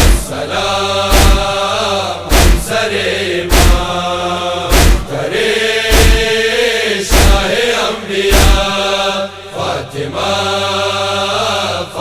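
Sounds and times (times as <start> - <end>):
chest-beating strikes: 0.0 - 0.4, 1.1 - 1.6, 2.3 - 2.8, 3.5 - 4.0, 4.7 - 5.2, 5.9 - 6.4, 7.1 - 7.5, 8.3 - 8.7
voices chanting a lament: 0.0 - 12.0.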